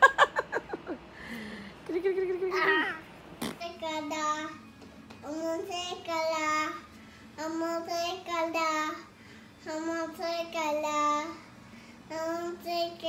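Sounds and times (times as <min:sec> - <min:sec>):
toddler singing: 0:05.2 - 0:11.5, 0:12.1 - 0:13.0.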